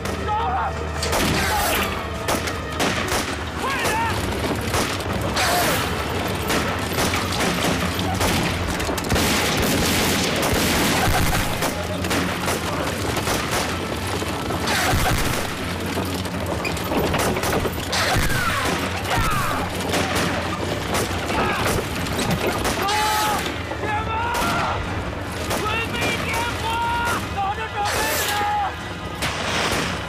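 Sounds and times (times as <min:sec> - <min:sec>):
gunfire bursts: 0:01.1 - 0:15.7
men shouting: 0:03.6 - 0:04.3, 0:18.0 - 0:19.8, 0:22.7 - 0:25.0, 0:25.6 - 0:28.8
explosions: 0:06.5 - 0:13.8.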